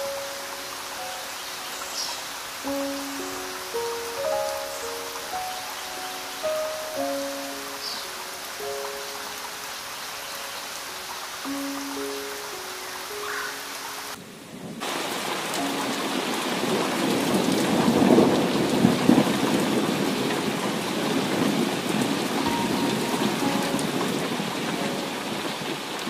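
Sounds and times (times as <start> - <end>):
heavy rain pouring onto water: 0.0 - 26.0
thunder rumble: 14.6 - 25.9.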